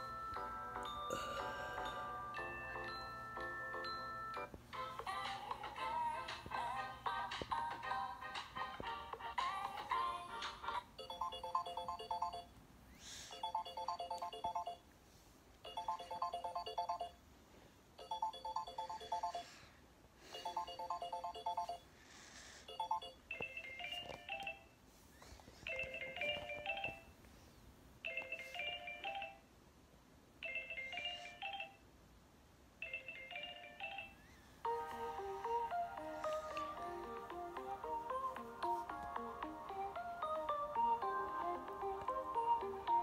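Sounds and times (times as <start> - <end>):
phone ringtone tinkling notes: 0.0 - 6.1, 11.0 - 12.5, 13.3 - 14.8, 15.6 - 17.2, 18.0 - 19.5, 20.3 - 21.8, 22.7 - 24.8, 25.7 - 27.1, 28.0 - 29.5, 30.4 - 31.8, 32.8 - 43.0
higher phone ringtone: 0.0 - 6.3, 11.0 - 12.5, 13.3 - 14.8, 15.6 - 17.2, 18.0 - 19.6, 20.3 - 21.9, 22.7 - 24.8, 25.7 - 27.1, 28.1 - 29.4, 30.4 - 31.8, 32.8 - 43.0.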